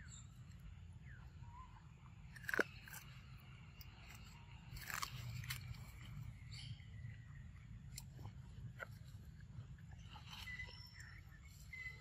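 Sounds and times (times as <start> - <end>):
loud crunch: 2.3 - 3.4, 4.1 - 6.2.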